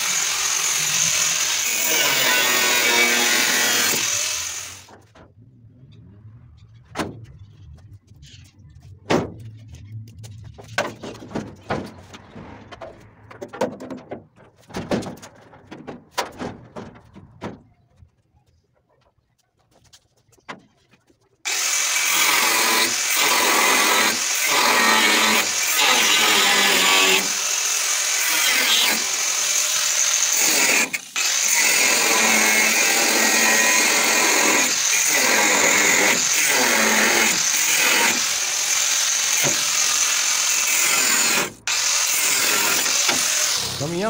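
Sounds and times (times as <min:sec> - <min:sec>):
angle grinder cutting metal: 0:00.0 - 0:04.9, 0:21.5 - 0:44.0
metal clanks and knocks: 0:06.6 - 0:07.7, 0:09.0 - 0:18.0.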